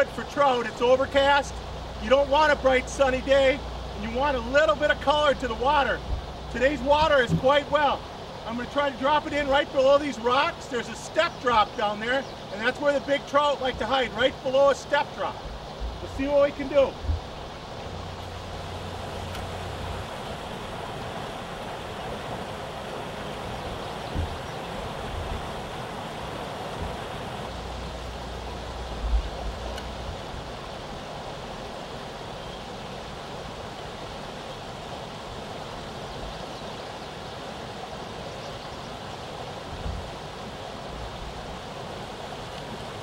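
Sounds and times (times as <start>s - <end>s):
stream water rushing over spillway: 0.0s - 43.0s
low thumps: 6.0s - 7.6s, 17.0s - 17.4s, 24.1s - 24.4s.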